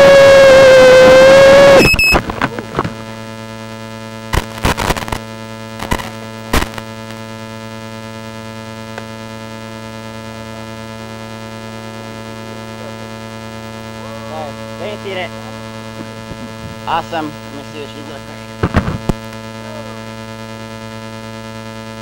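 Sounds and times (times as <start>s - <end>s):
electrical hum: 0.0s - 22.0s
static crackles: 0.0s - 22.0s.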